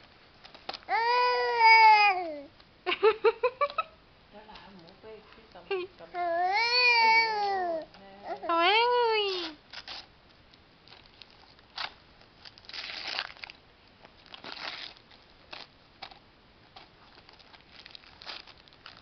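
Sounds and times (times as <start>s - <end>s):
wrapping paper crinkling: 10.8s - 19.0s.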